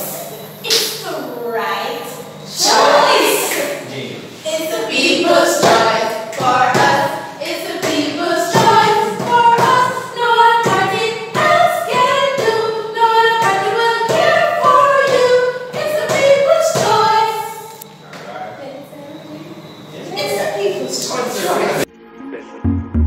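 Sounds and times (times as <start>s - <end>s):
women singing unaccompanied: 4.5s - 17.8s.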